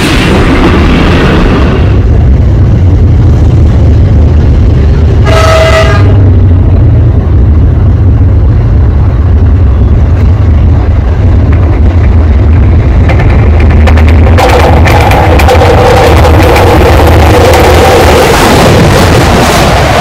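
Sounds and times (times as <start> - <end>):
low rumble: 0.0 - 20.0
locomotive horn blast: 5.2 - 6.4.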